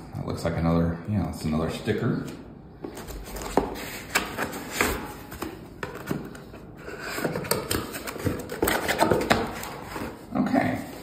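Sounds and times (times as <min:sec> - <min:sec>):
cardboard packaging handled: 0:02.9 - 0:10.3.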